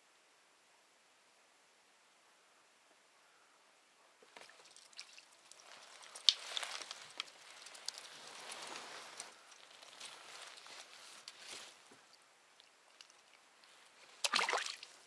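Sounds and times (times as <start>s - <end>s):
water splashing and trickling: 4.2s - 11.4s, 12.0s - 15.0s.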